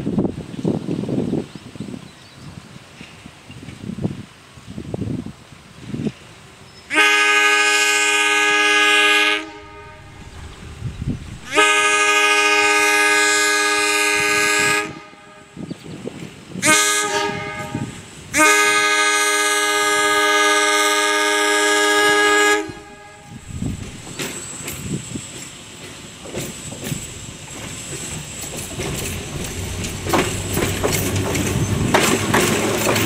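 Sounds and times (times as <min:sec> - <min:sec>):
train horn blasts: 0:06.9 - 0:16.0, 0:16.6 - 0:24.2, 0:29.2 - 0:31.6.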